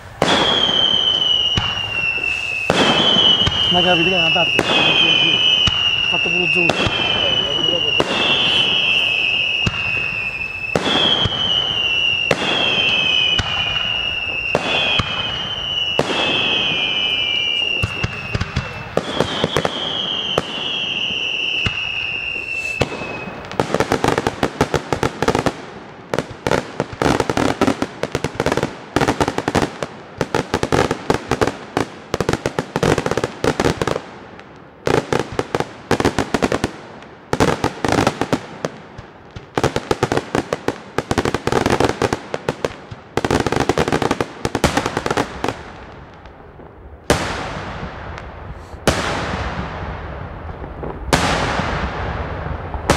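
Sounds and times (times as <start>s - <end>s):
falling firework whistle: 0.0s - 24.3s
firecracker crackle: 0.0s - 52.9s.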